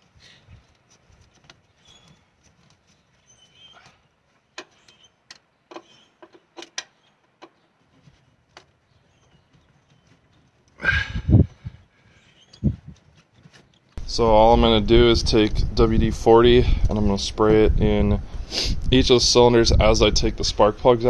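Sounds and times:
hand tools clicking against metal: 0.7s - 7.7s.

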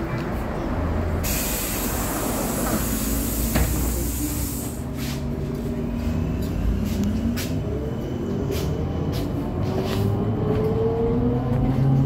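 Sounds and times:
rumble of bus body: 0.0s - 12.0s
trolleybus drive whine: 0.0s - 12.0s
high hiss: 1.2s - 4.8s.

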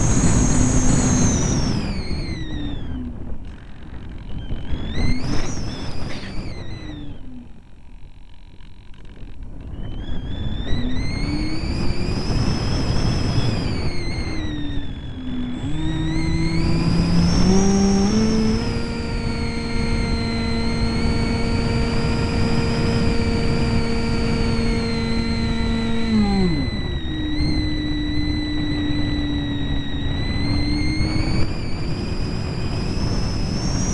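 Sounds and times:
electric motor and propeller whining: 0.0s - 33.9s.

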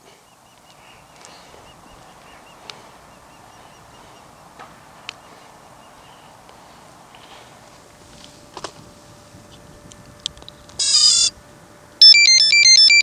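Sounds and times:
open-air hiss: 0.0s - 12.7s
bird chirps: 0.2s - 6.4s.

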